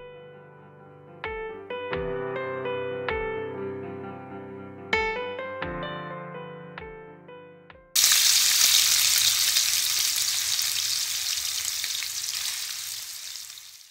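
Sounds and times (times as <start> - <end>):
piano music: 0.0 - 10.7
sausage sizzling in hot oil: 8.0 - 13.9.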